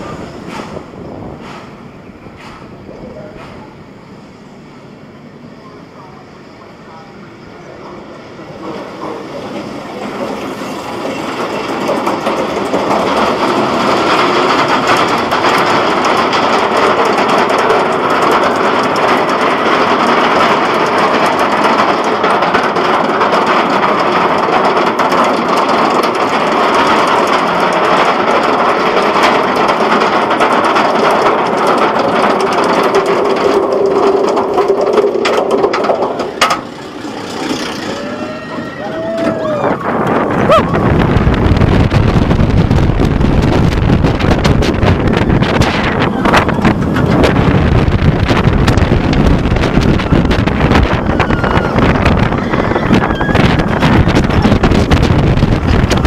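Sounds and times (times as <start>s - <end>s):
roller coaster wheels on steel track: 0.0s - 56.0s
wind rushing: 37.2s - 56.0s.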